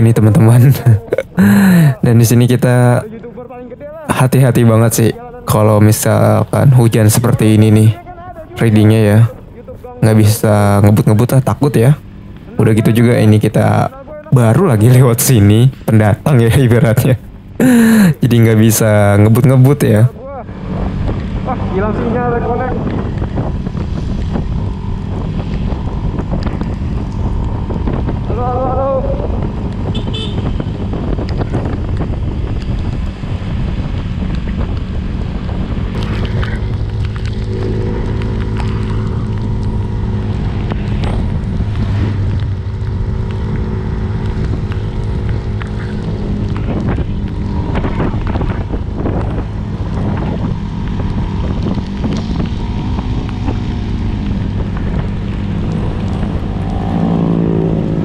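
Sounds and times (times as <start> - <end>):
motorcycle engine: 7.4 - 15.9, 17.1 - 58.0
wind buffeting microphone: 18.7 - 58.0
vehicle horn tooting: 29.9 - 30.7.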